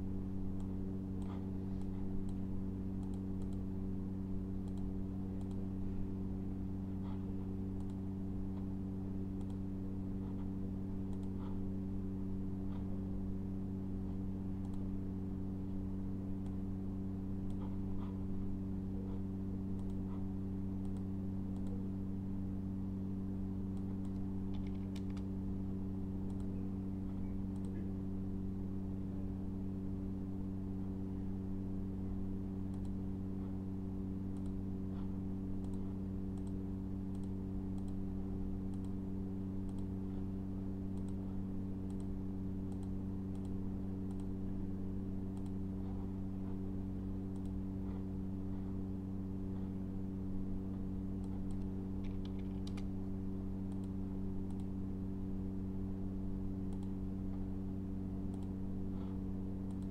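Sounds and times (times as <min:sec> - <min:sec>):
low electrical hum: 0:00.0 - 0:59.9
computer mouse clicks: 0:00.5 - 0:03.7, 0:04.6 - 0:05.7, 0:07.8 - 0:08.6, 0:09.4 - 0:09.6, 0:10.3 - 0:11.6, 0:14.6 - 0:14.9, 0:17.4 - 0:18.3, 0:19.1 - 0:21.8, 0:23.7 - 0:25.3, 0:26.2 - 0:27.9, 0:32.7 - 0:33.0, 0:34.3 - 0:38.0, 0:38.7 - 0:39.0, 0:39.6 - 0:39.9, 0:40.9 - 0:44.4, 0:45.3 - 0:46.1, 0:47.3 - 0:48.0, 0:51.2 - 0:52.9, 0:53.7 - 0:54.8, 0:56.7 - 0:57.0, 0:58.3 - 0:59.9.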